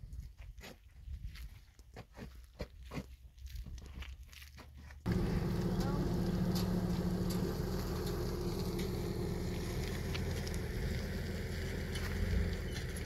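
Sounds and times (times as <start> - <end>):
engine running steadily: 5.1 - 13.0.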